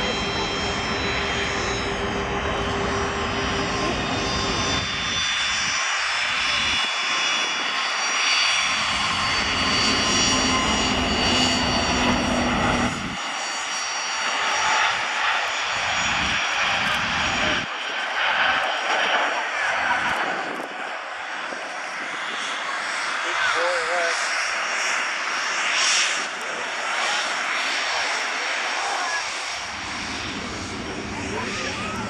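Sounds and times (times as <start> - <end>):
high whining tones: 0.0 - 6.8, 7.6 - 17.6
jet engines roaring: 0.0 - 32.0.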